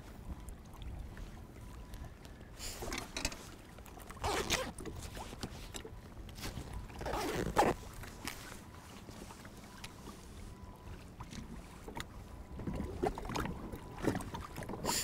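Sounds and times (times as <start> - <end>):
zipper rasping: 4.2 - 4.7, 7.0 - 7.8.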